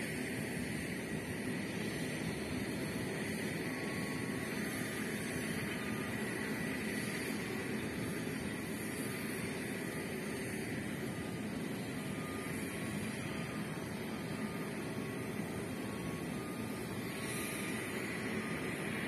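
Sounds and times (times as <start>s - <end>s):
faint high whine: 0.0s - 19.0s.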